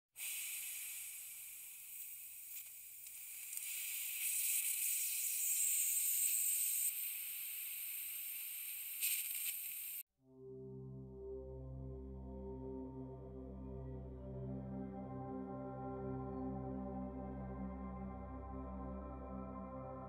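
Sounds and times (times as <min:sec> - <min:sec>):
steady high hiss: 0:00.2 - 0:10.0
music with long held tones: 0:10.2 - 0:20.0.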